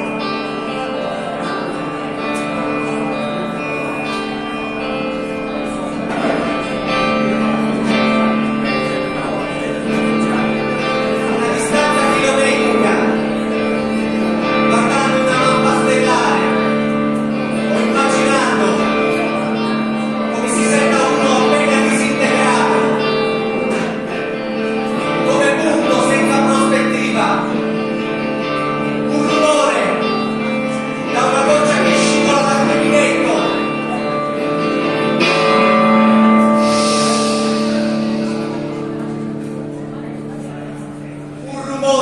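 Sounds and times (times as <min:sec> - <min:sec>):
electric guitar: 0:00.0 - 0:42.0
sustained accompaniment: 0:00.0 - 0:42.0
man singing: 0:09.4 - 0:13.8, 0:14.4 - 0:17.0, 0:20.2 - 0:24.1, 0:25.0 - 0:27.6, 0:29.0 - 0:30.2, 0:30.8 - 0:34.1
cymbal wash: 0:35.4 - 0:40.0.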